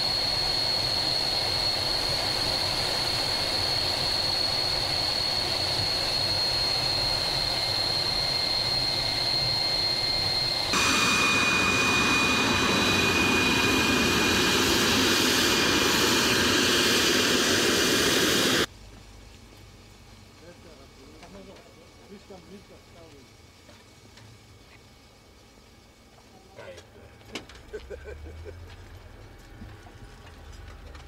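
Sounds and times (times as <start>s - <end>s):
jet engine rushing and whining: 0.0s - 18.7s.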